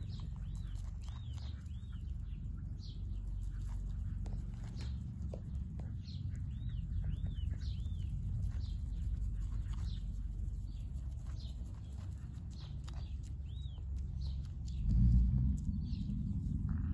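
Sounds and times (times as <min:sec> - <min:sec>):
grass tearing and clicking: 0:00.0 - 0:02.4, 0:08.1 - 0:15.7
goat chewing grass: 0:00.0 - 0:16.8
small birds chirping: 0:00.0 - 0:16.9
steady low rumble: 0:00.0 - 0:16.9.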